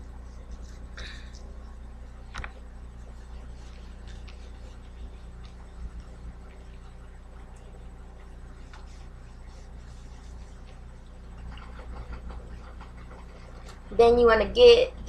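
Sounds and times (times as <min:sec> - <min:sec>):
low hum: 0:00.0 - 0:15.0
wet cloth scrubbing a stove: 0:02.2 - 0:14.2.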